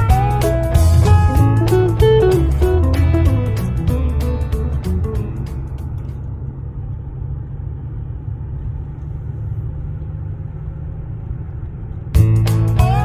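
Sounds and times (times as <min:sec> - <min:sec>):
guitar music: 0:00.0 - 0:06.2, 0:12.2 - 0:13.0
car interior road rumble: 0:00.0 - 0:13.0.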